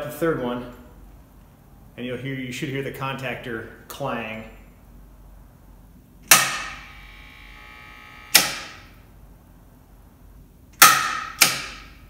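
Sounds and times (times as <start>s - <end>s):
contactor coil buzzing: 6.3s - 9.0s.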